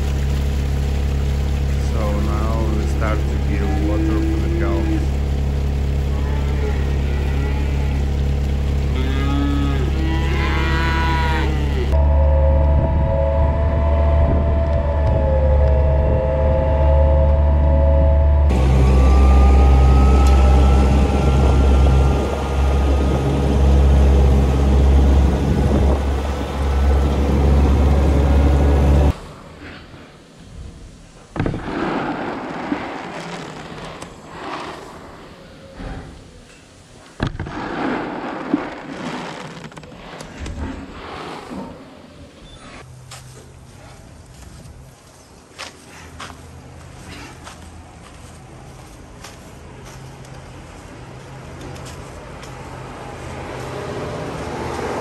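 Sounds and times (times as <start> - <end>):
calves mooing: 6.2 - 8.1, 8.9 - 12.0
cart motor humming: 11.4 - 29.2.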